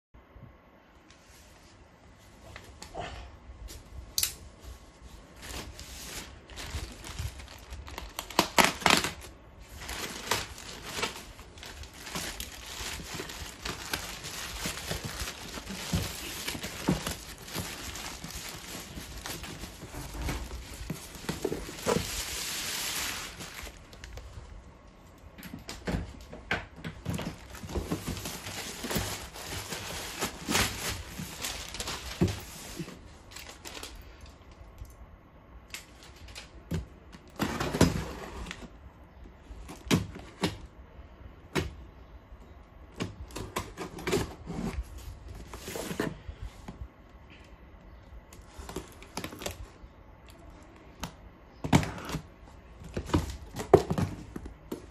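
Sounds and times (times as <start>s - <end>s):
plastic bag tearing and crinkling: 5.4s - 24.2s, 27.2s - 34.0s.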